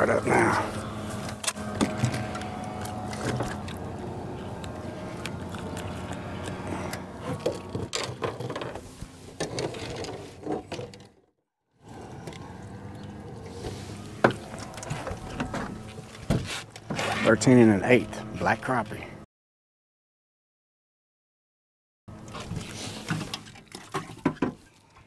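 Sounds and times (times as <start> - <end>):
steady mechanical hum: 0.0 - 11.0, 11.8 - 19.2.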